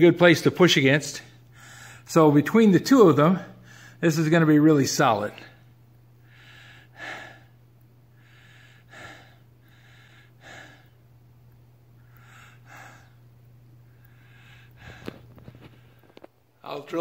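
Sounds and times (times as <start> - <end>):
man breathing heavily: 1.3 - 2.1, 3.4 - 4.0, 6.2 - 11.1, 11.9 - 16.3.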